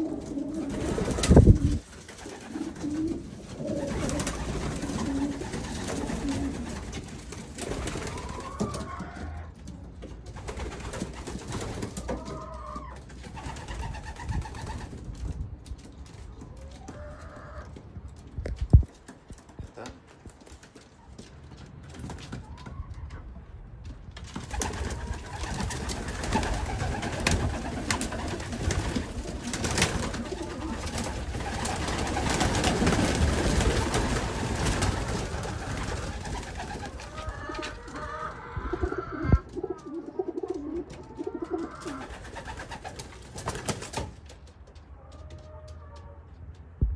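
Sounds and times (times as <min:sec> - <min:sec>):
pigeons cooing: 0:00.0 - 0:06.9, 0:24.6 - 0:42.9
pigeon wings fluttering: 0:00.0 - 0:08.9, 0:10.2 - 0:16.7, 0:24.1 - 0:38.0, 0:39.4 - 0:44.6.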